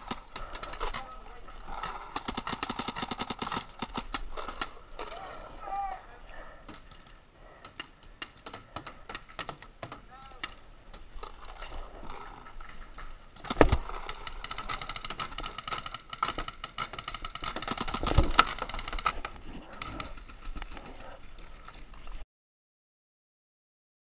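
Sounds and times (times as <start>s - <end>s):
paintball guns firing: 0.0s - 5.2s, 13.4s - 20.2s.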